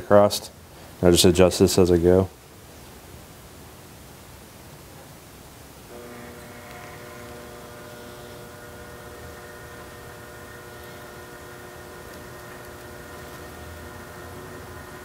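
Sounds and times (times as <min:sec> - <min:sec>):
electric motor humming: 0:05.9 - 0:15.0.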